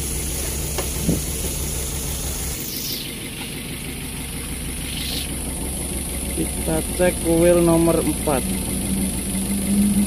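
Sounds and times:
car engine idling and misfiring: 0.0 - 10.0.

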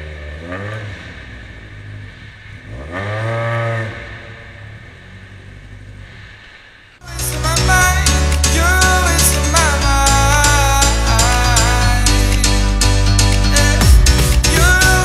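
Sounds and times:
car engine idling and revving: 0.0 - 15.0
loud music: 7.0 - 15.0.

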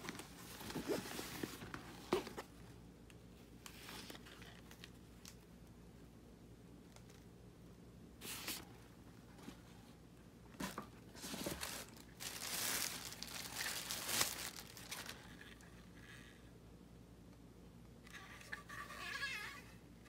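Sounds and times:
plastic packaging crinkling: 11.2 - 15.6
sharp plastic crackle: 11.4 - 15.5.

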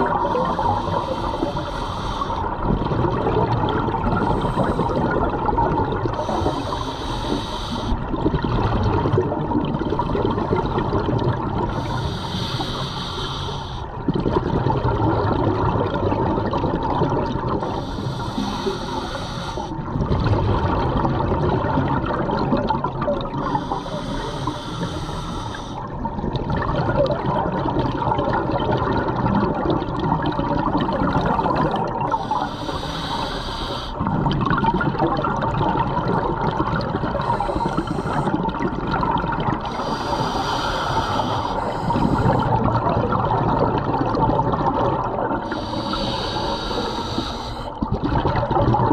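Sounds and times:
gurgling exhaled bubbles: 0.0 - 48.9
regulator inhalation hiss: 0.2 - 2.4, 6.2 - 8.0, 11.7 - 13.9, 17.6 - 19.7, 23.4 - 25.8, 32.1 - 34.0, 37.2 - 38.4, 39.7 - 42.5, 45.4 - 47.7.

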